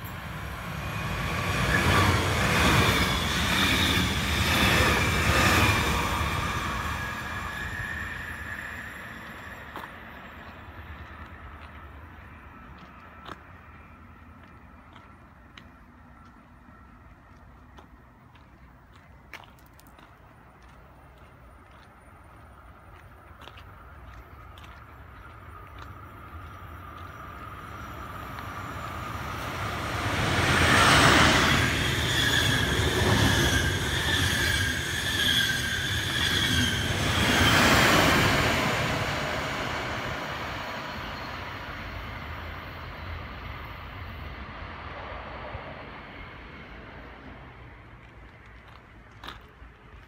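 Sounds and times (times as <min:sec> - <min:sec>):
train wheels rumbling: 0:00.0 - 0:50.0
high-pitched wheel squeal: 0:02.8 - 0:10.4, 0:30.7 - 0:37.9.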